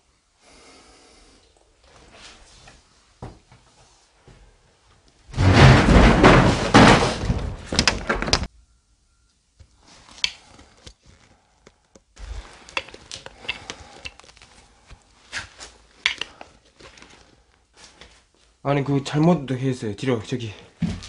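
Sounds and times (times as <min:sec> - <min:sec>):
loud clattering: 0:05.3 - 0:08.5
rustling handling noise: 0:09.6 - 0:18.6.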